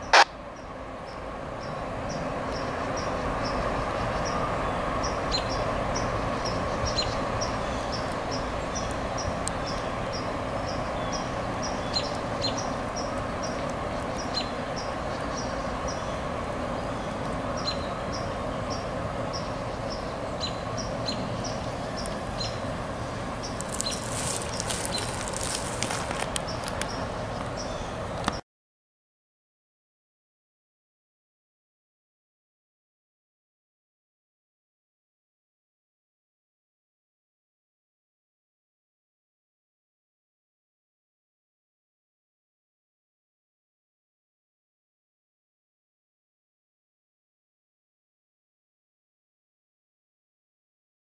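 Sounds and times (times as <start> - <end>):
freight train rumbling: 0.0 - 28.4
crackling: 23.5 - 26.9.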